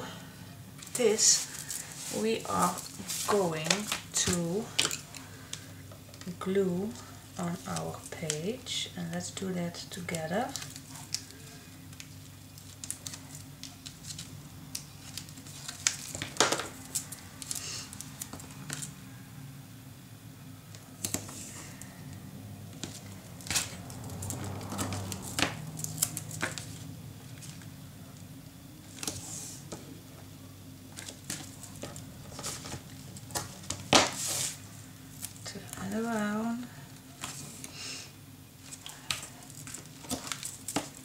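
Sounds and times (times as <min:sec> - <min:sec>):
steady low hum: 0:00.0 - 0:41.0
paper rustling: 0:00.8 - 0:05.6, 0:10.5 - 0:18.9, 0:22.8 - 0:27.7, 0:31.0 - 0:35.4.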